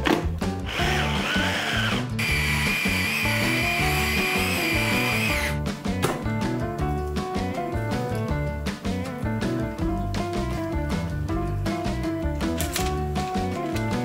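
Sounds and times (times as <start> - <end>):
hand blender motor whining: 0.6 - 5.6.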